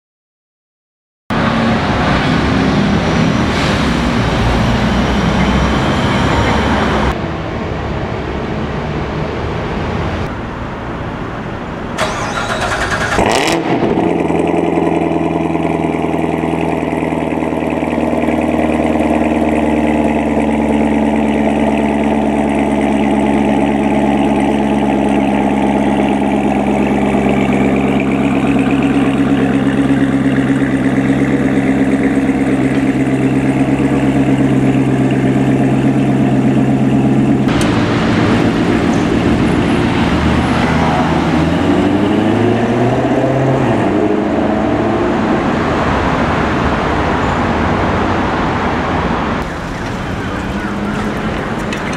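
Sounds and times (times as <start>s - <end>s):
street traffic: 1.3s - 51.9s
car engine starting and idling: 11.6s - 44.3s, 49.4s - 51.9s.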